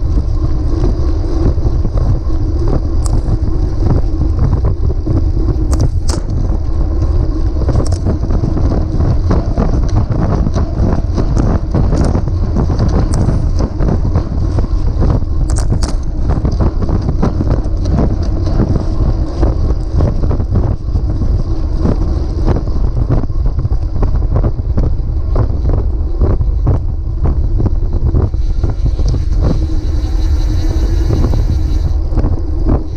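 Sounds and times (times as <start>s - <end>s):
wind rumble on microphone: 0.0s - 32.9s.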